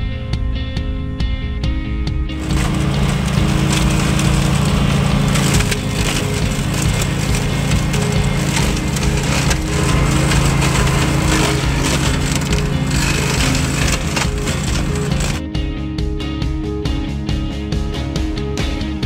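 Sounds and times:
ride-on brushcutter engine: 2.4 - 15.4
stems crackling and snapping: 2.4 - 15.4.

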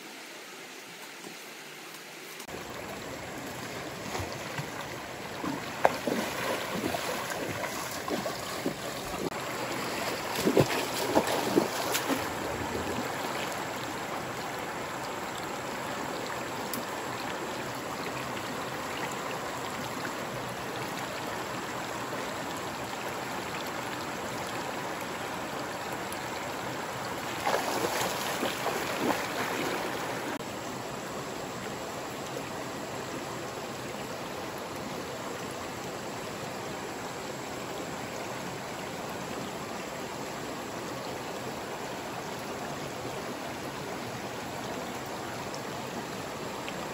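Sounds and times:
stream rushing over rapids: 0.0 - 46.9
water splashing: 2.5 - 13.8, 27.2 - 30.4.

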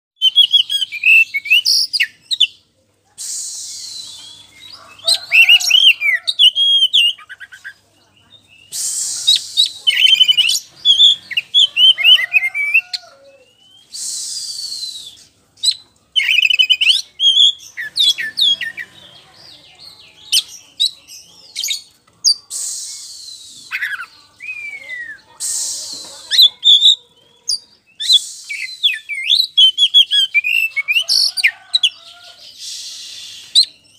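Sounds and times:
bird song whistles and trills: 0.2 - 2.6, 3.2 - 19.0, 20.0 - 33.9
harsh hissing rasp: 8.7 - 9.8, 13.9 - 14.8, 22.5 - 23.6, 25.3 - 26.3, 28.1 - 28.8, 32.3 - 33.6.

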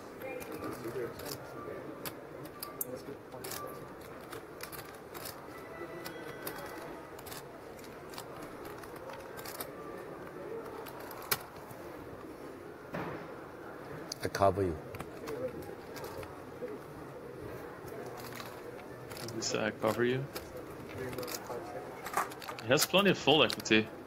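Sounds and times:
low murmur of voices: 0.0 - 24.0
poker chips clicking: 2.0 - 9.8, 17.9 - 23.8.

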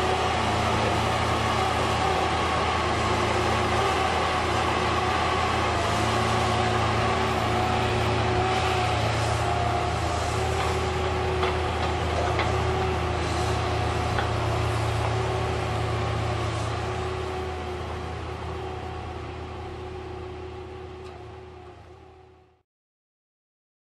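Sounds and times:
heavy diesel engine running: 0.0 - 22.6.

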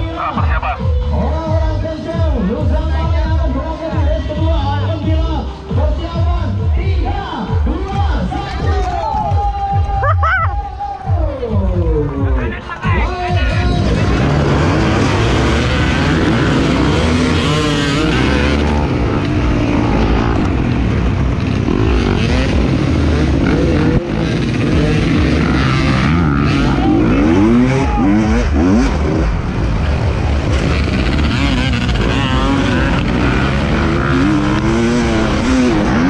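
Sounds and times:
other dirt bike engines: 0.0 - 36.0
motorcycle engine revving hard: 13.6 - 36.0.

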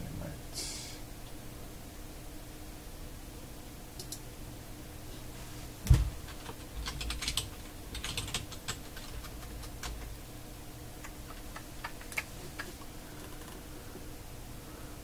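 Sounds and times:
typing on computer keyboard: 6.3 - 10.2, 11.0 - 12.7.

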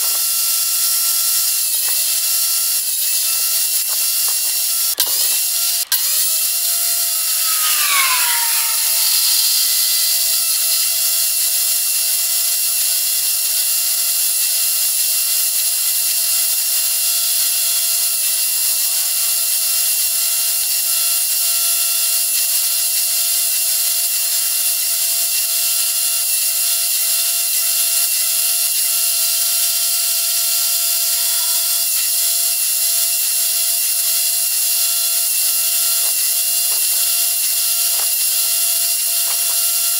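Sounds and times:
table saw whining: 0.0 - 13.5, 24.2 - 39.9.

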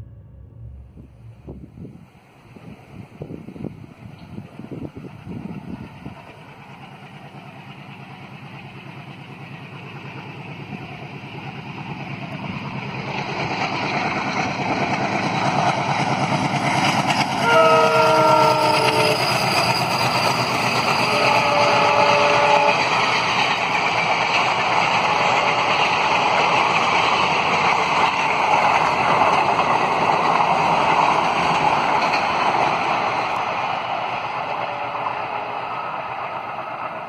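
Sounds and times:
diesel locomotive engine: 0.0 - 37.0
train rolling: 0.0 - 37.0
locomotive horn chord: 17.4 - 19.3, 21.0 - 23.0.

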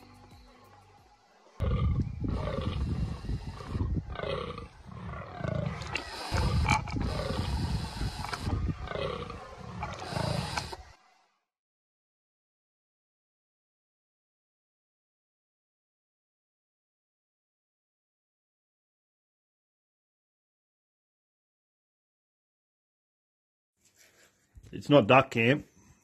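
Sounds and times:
deer groaning: 1.6 - 10.9.

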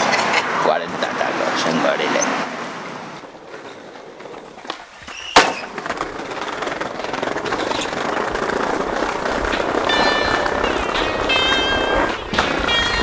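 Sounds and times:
skateboard wheels rolling on stone: 2.2 - 13.0
skateboard landing slap: 4.6 - 6.4.

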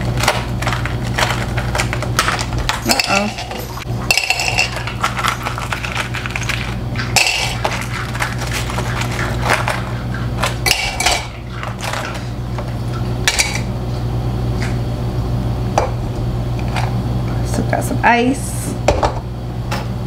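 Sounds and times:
steady low hum: 0.0 - 20.0
ice cubes clinking in glass: 0.2 - 7.7.

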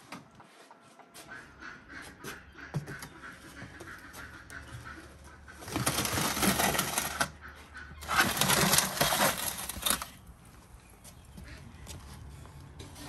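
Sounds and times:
metal tray scraping oven floor: 8.0 - 10.1.

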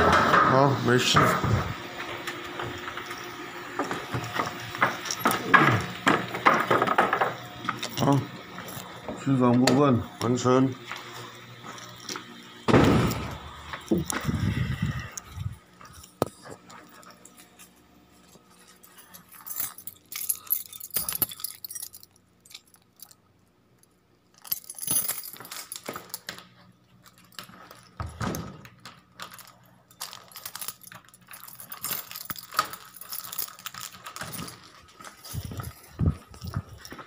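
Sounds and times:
keys jangling: 4.2 - 6.3, 13.8 - 17.6, 18.2 - 37.0.

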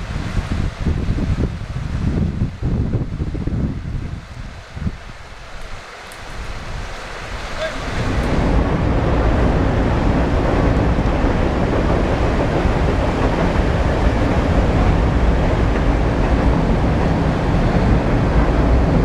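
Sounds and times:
stream rapids rushing: 4.1 - 19.0.

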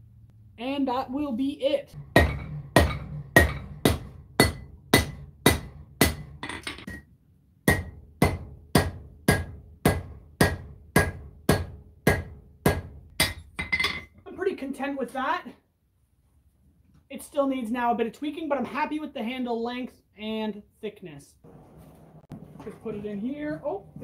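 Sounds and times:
hammer striking steel on anvil: 2.0 - 7.0, 7.6 - 14.1.

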